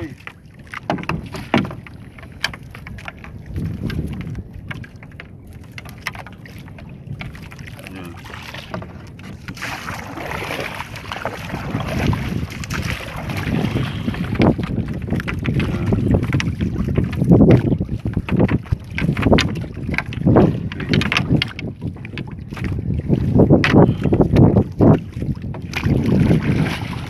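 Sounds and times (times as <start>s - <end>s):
water splashing against boat: 0.0s - 27.0s
wind on microphone: 0.0s - 27.0s
knocks on boat hull: 0.8s - 4.3s.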